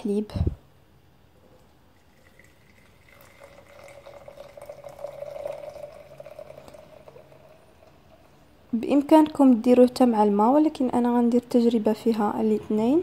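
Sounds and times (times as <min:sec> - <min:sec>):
milk pouring into a glass: 0:01.5 - 0:08.6.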